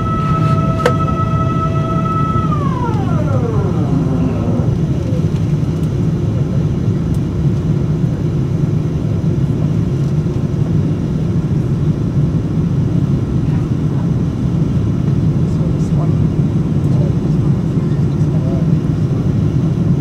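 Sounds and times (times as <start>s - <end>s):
faint falling whine: 0.0s - 5.5s
aircraft cabin engine roar: 0.0s - 20.0s.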